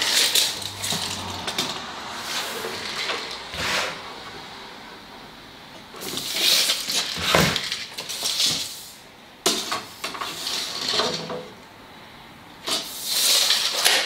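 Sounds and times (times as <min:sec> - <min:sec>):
tape measure scraping on wood: 0:02.2 - 0:04.0, 0:12.7 - 0:14.0.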